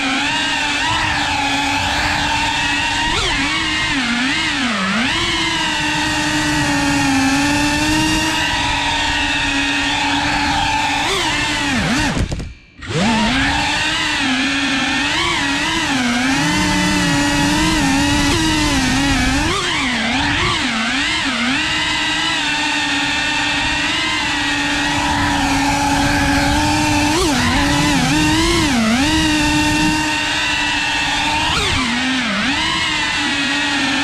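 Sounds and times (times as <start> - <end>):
drone motors whining: 0.0 - 34.0.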